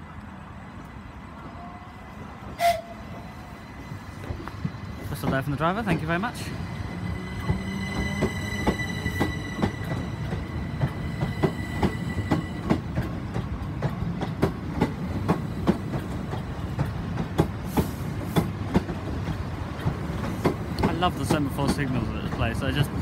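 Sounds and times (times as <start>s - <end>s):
wheels clicking over rail joints: 4.2s - 23.0s
electric train traction whine: 5.8s - 14.1s.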